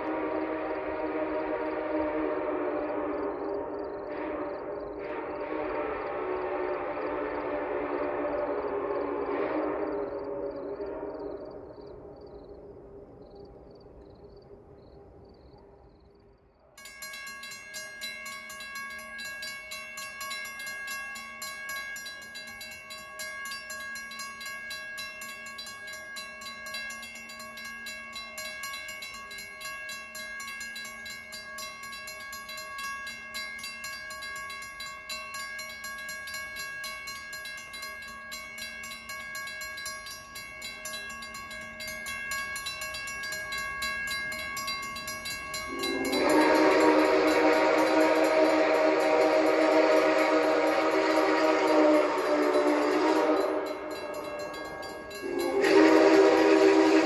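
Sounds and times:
railroad crossing bell ringing: 0:00.0 - 0:00.2, 0:16.8 - 0:57.0.

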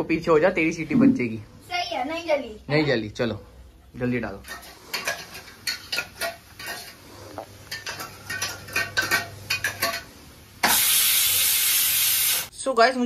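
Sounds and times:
steel utensils clinking and scraping: 0:04.4 - 0:07.0, 0:07.7 - 0:10.8.

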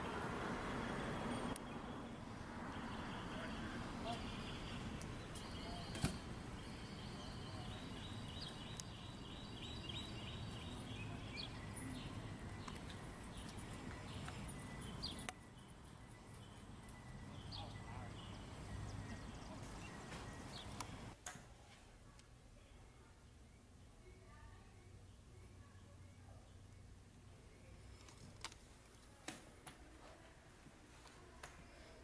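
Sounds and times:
birds chirping: 0:00.0 - 0:21.2.

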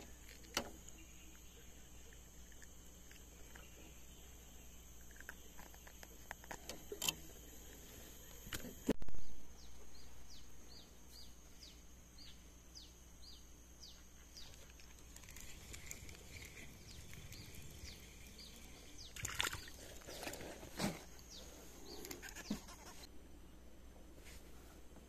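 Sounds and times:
bird chirping: 0:09.2 - 0:22.6.

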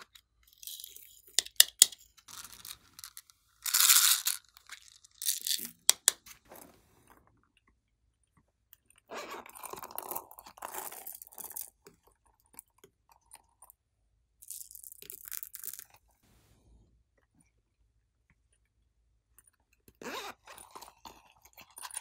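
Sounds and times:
plastic beads rattling: 0:00.5 - 0:06.1.

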